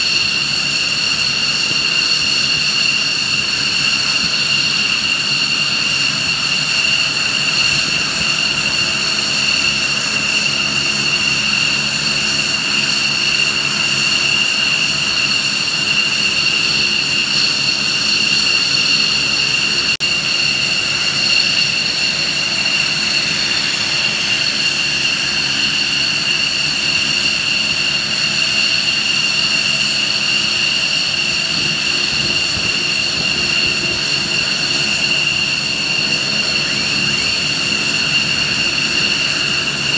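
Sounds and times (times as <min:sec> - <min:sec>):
aircraft turbine engines idling: 0:00.0 - 0:39.9.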